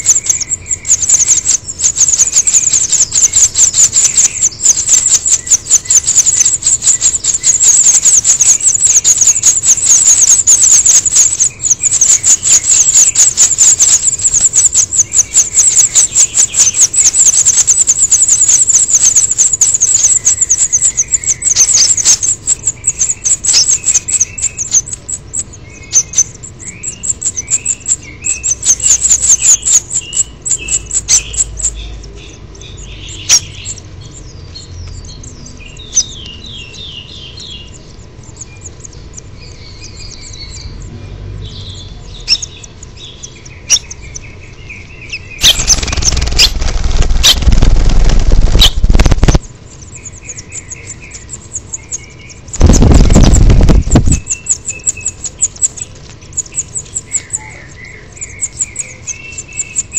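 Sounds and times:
nestlings chirping: 0.0s - 59.9s
wings flapping: 45.4s - 49.5s, 52.6s - 54.3s.

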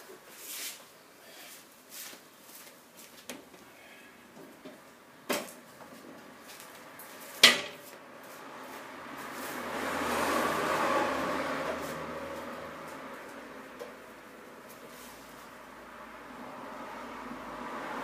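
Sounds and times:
sharp knocks: 7.4s - 7.9s.

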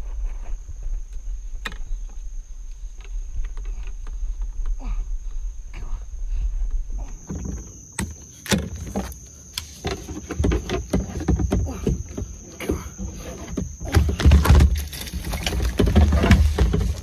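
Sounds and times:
low rumbling handling noise: 0.0s - 17.0s
sharp knocks and clatter: 13.5s - 17.0s.

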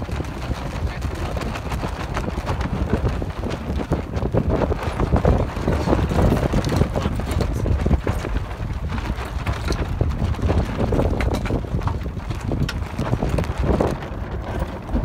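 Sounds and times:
water splashing against hull: 0.0s - 15.0s
wind buffeting microphone: 0.0s - 15.0s.

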